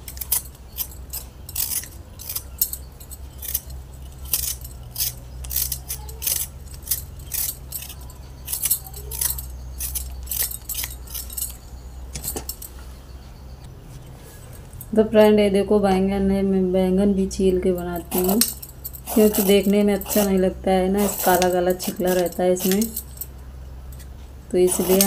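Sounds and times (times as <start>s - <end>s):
peeler scraping potato: 0.0s - 11.6s, 17.8s - 23.2s, 24.0s - 25.0s
light jangling: 0.0s - 13.6s, 17.8s - 25.0s
steady low hum: 0.0s - 25.0s.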